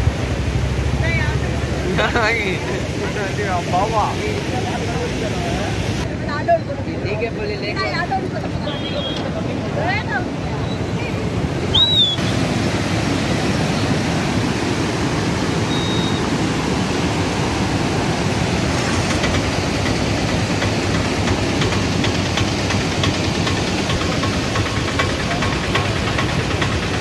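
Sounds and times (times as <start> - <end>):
floodwater rushing: 0.0 - 6.1, 7.8 - 27.0.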